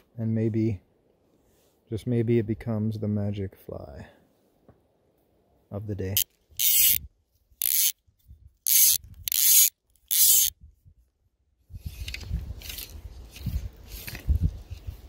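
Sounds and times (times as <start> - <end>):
fishing reel clicking: 6.2 - 7.0, 7.6 - 8.0, 8.6 - 10.6.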